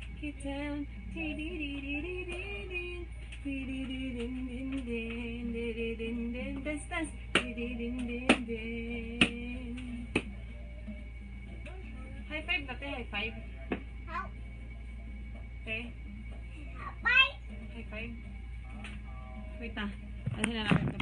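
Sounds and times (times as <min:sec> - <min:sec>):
woman singing long notes: 0:00.2 - 0:10.2.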